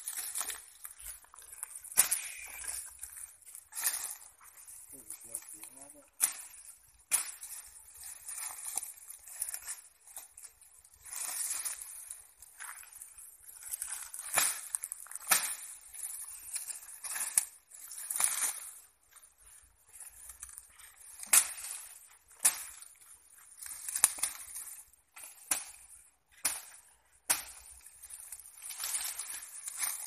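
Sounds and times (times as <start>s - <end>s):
dry twigs snapping: 0.0s - 4.3s, 21.2s - 22.9s, 23.6s - 25.8s
leaves and stems rustling: 0.0s - 30.0s.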